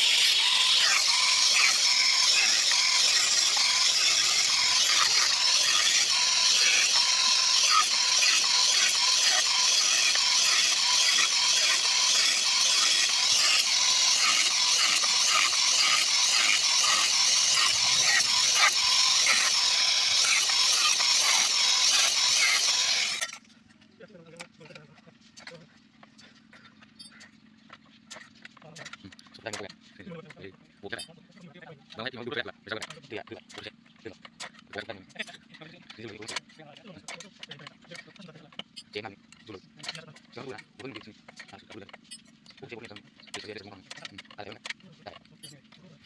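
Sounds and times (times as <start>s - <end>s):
angle grinder cutting steel: 0.0s - 23.5s, 32.7s - 45.8s.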